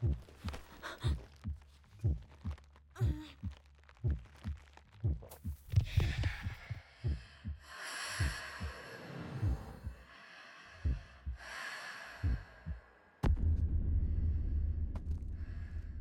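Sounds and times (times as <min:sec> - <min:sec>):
heartbeat of low thumps: 0:00.0 - 0:08.8, 0:09.4 - 0:10.1, 0:10.8 - 0:11.5, 0:12.2 - 0:16.0
heavy breaths: 0:05.8 - 0:13.2.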